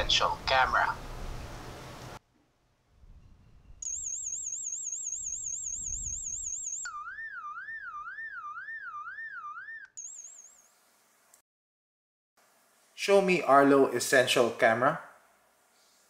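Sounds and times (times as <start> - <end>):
electronic siren warbling: 3.8 - 10.7.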